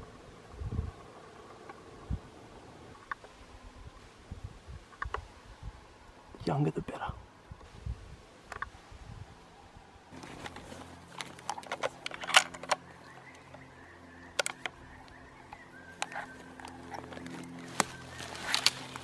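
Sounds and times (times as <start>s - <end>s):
faint steady hum: 0.0s - 19.0s
sticks and stones snapping underfoot: 16.0s - 19.0s.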